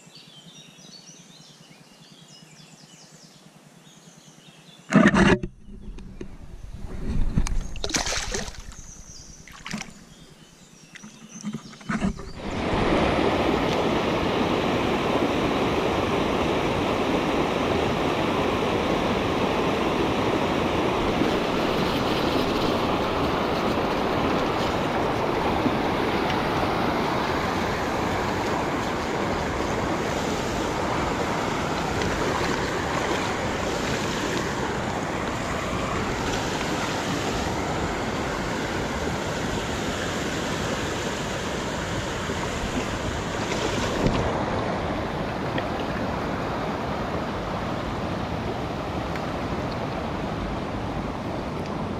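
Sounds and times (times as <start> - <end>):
water splashes and knocks: 4.9 - 8.8, 9.4 - 10.2, 21.0 - 37.6, 42.3 - 46.3
stream rushing over rocks: 12.2 - 51.9.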